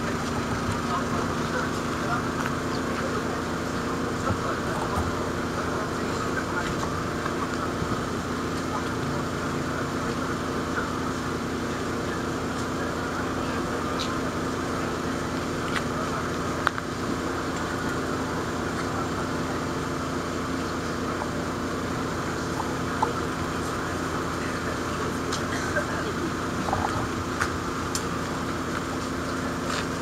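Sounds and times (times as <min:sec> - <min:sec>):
diesel truck engine idling: 0:00.0 - 0:30.0.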